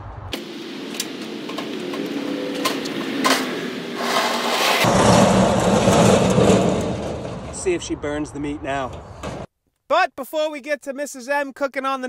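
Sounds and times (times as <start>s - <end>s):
casters rolling across asphalt: 0.3s - 7.7s
metal clanks: 0.9s - 7.7s.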